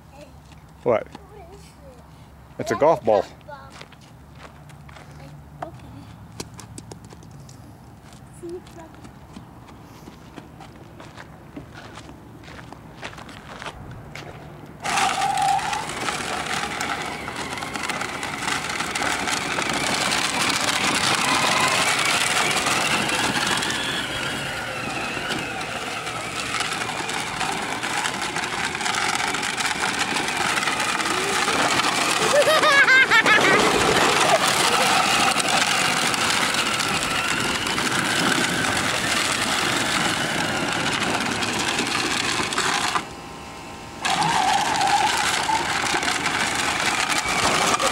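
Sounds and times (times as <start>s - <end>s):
quad bike motor revving: 14.1s - 47.9s.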